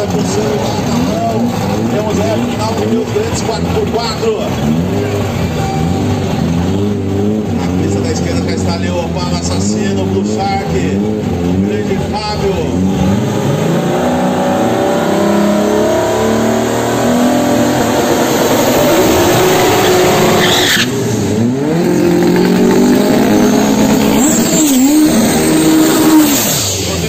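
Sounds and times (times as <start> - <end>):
racing car engine revving: 0.0 - 27.0.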